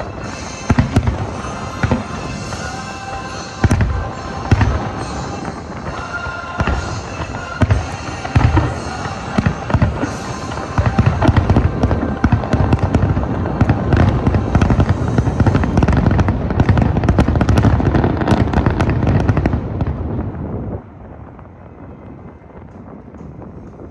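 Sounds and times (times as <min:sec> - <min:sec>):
music playing: 0:00.0 - 0:19.8
fireworks cracks and booms: 0:00.0 - 0:23.9.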